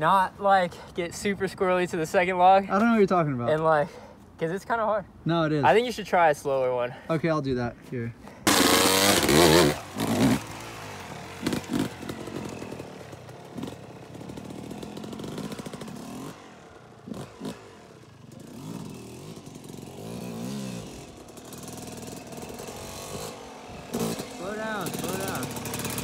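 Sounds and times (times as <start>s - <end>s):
dirt bike engine revving: 8.4s - 26.0s.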